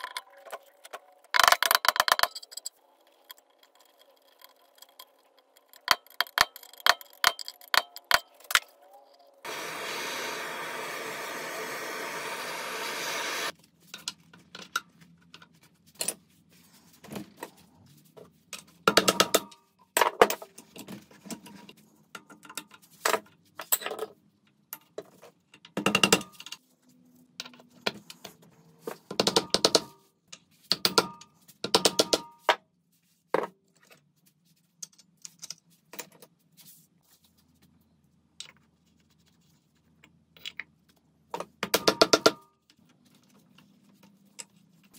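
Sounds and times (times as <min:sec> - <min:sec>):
steady hiss: 0:09.5 - 0:13.5.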